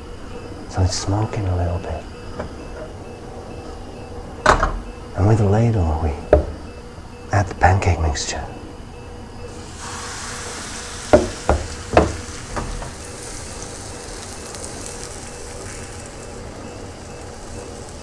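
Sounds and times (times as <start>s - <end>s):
batter sizzling in a frying pan: 9.5s - 18.0s.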